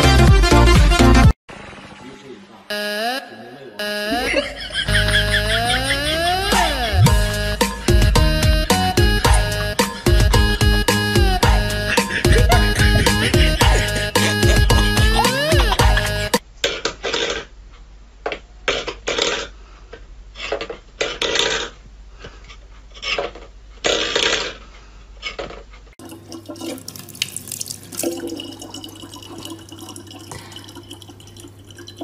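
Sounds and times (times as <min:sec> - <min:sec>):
tap water running into bottle: 0:26.0 - 0:32.0.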